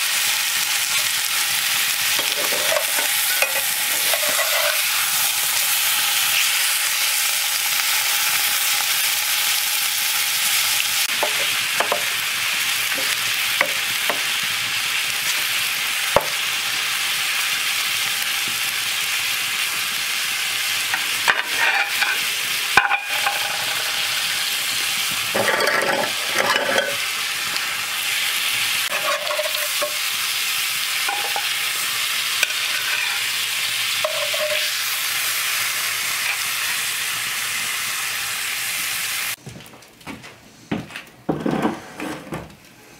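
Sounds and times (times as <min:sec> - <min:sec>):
steak sizzling in skillet: 0:00.0 - 0:39.4
metal spatula scraping pan: 0:02.2 - 0:05.0, 0:21.2 - 0:24.2, 0:25.3 - 0:27.1, 0:28.9 - 0:30.1, 0:31.1 - 0:31.6, 0:32.4 - 0:33.4, 0:34.0 - 0:34.8.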